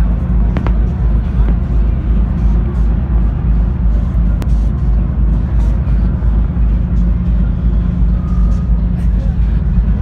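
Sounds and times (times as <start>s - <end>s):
bass-heavy electronic dance music: 0.0s - 10.0s
sharp pop: 0.5s - 1.6s.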